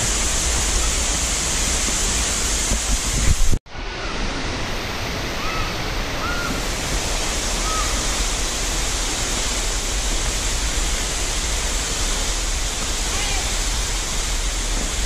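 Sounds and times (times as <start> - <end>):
waterfall rushing: 0.0 - 15.0.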